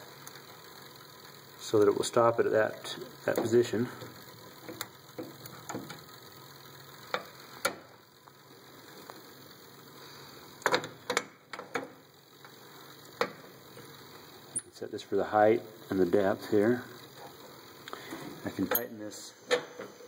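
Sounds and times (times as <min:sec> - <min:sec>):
faint hiss: 0:00.0 - 0:11.2, 0:11.8 - 0:20.0
metal clicks and clinks: 0:18.6 - 0:19.1.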